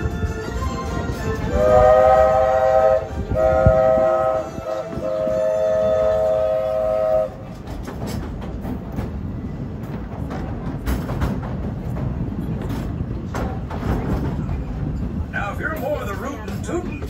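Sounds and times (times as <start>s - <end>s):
rail clicks: 0.0s - 17.0s
rumble of moving train: 0.0s - 17.0s
steam locomotive whistle blowing: 0.6s - 7.4s.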